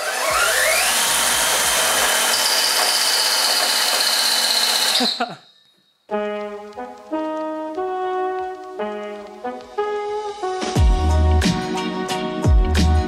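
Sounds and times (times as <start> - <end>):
electric chainsaw motor whine: 0.0 - 5.2
music with brass: 6.1 - 13.0.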